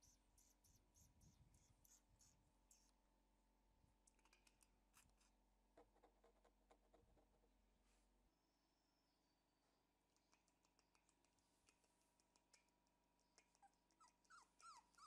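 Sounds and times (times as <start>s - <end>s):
puppies suckling clicks: 4.1s - 5.3s, 10.1s - 15.0s.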